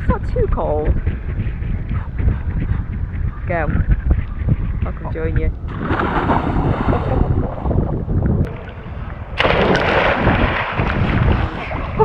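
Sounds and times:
wind rumbling on microphone: 0.0s - 12.0s
water splashing: 5.6s - 7.9s, 8.5s - 12.0s
loud close splash: 9.4s - 12.0s.

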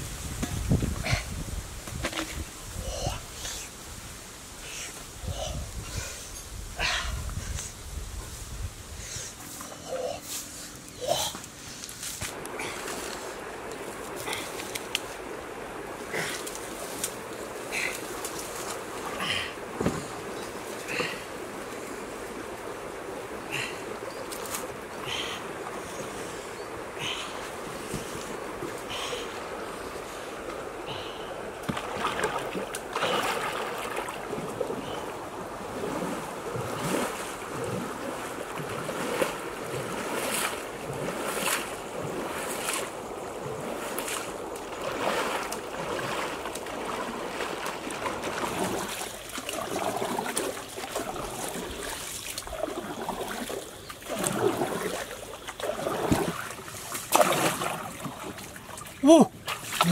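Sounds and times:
rush of moving water: 0.0s - 59.9s
paddle splashing into water: 31.6s - 59.9s.

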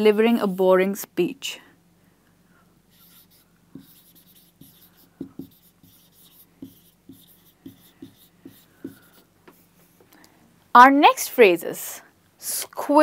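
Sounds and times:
marker squeaking on whiteboard: 2.9s - 10.0s
marker tapping board: 3.0s - 9.6s.

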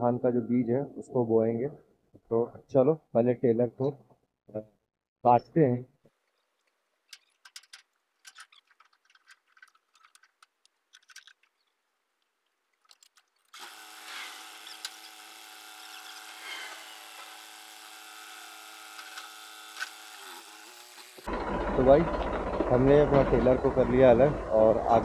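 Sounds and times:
metal clinks and scrapes: 6.2s - 11.8s
mechanical whine: 21.1s - 25.0s.

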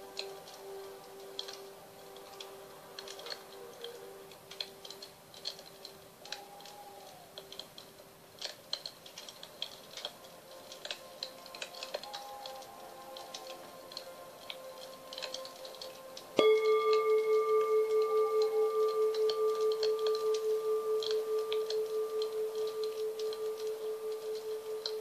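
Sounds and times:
wood fire crackling and popping: 0.0s - 25.0s
singing bowl ringing: 16.4s - 25.0s.

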